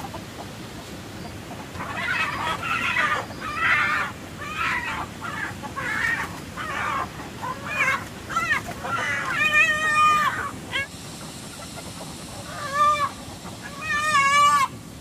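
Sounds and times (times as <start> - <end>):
chickens calling: 0.0 - 15.0.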